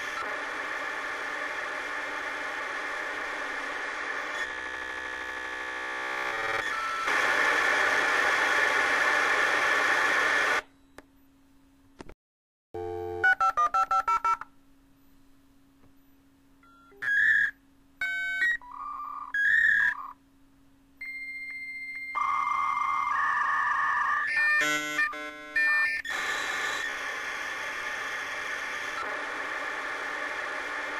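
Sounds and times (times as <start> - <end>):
modem hiss with shifting tones: 0.0 - 11.1, 21.0 - 30.9
modem handshake beeps and tones: 12.8 - 14.5
touch-tone dialing beeps: 13.2 - 14.4.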